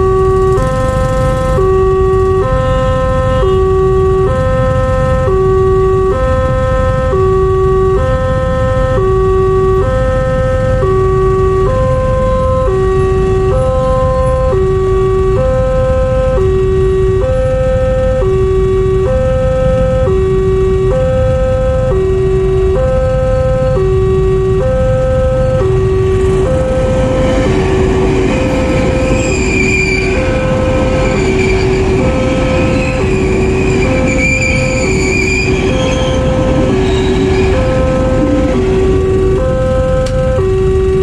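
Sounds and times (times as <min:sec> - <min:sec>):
electric train passing: 0:00.0 - 0:02.3, 0:25.2 - 0:41.0
level crossing alarm two-tone: 0:00.0 - 0:41.0
steady low rumble: 0:18.3 - 0:34.8, 0:35.4 - 0:41.0.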